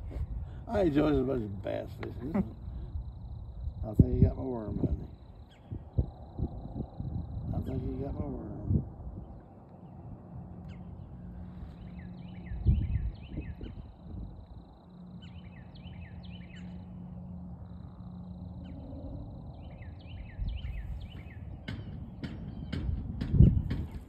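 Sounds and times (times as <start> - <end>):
bird chirping: 4.8 - 8.0, 9.2 - 24.0.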